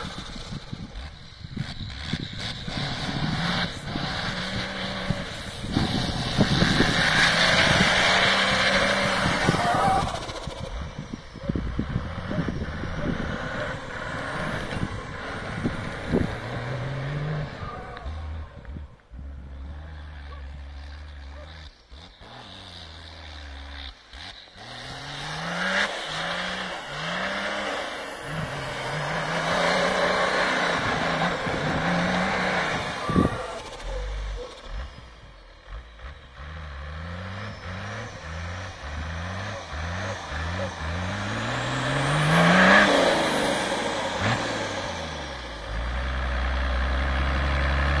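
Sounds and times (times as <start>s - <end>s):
car engine revving: 0.0s - 48.0s.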